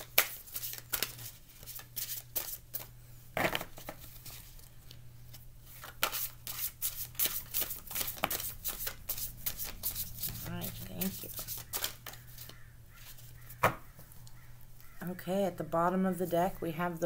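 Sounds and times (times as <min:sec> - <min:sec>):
cards shuffling: 0:00.0 - 0:13.6.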